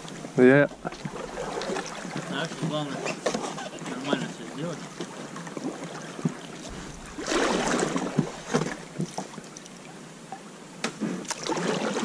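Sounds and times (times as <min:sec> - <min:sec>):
paddle strokes splashing water: 0:00.0 - 0:09.7, 0:11.2 - 0:12.0
sharp knocks: 0:06.7 - 0:09.3.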